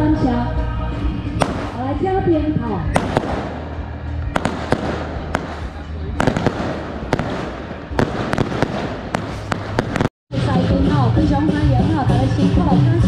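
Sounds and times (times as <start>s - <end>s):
firecrackers crackling and banging: 1.4s - 2.0s, 2.9s - 10.1s.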